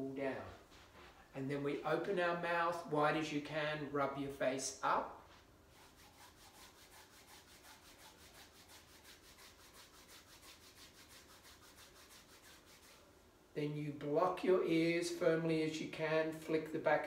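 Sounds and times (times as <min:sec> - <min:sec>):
palms rubbing over face: 0:05.2 - 0:13.1.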